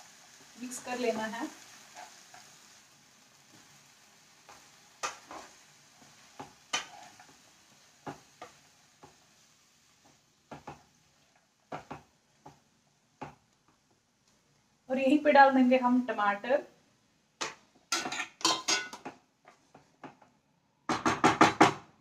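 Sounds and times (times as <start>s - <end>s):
faint sizzling: 0.0s - 20.4s
wooden spatula scraping pan: 4.5s - 9.3s.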